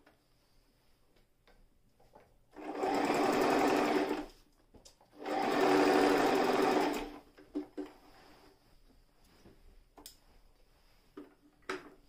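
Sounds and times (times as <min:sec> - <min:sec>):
sewing machine stitching: 0:02.6 - 0:04.3, 0:05.2 - 0:07.2.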